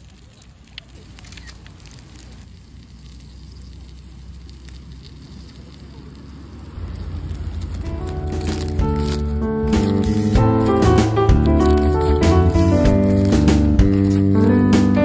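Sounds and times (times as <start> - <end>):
bread sizzling on griddle: 0.0 - 14.9
campfire crackling: 0.0 - 15.0.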